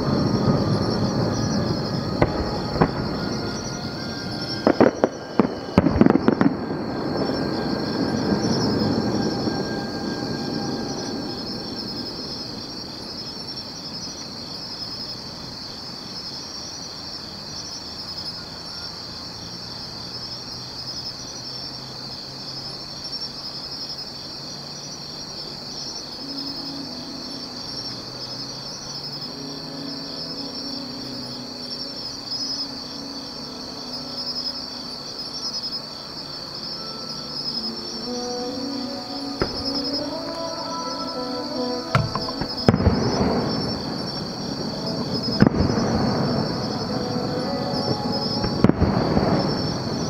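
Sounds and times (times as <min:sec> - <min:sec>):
crickets chirping: 0:00.0 - 0:50.0.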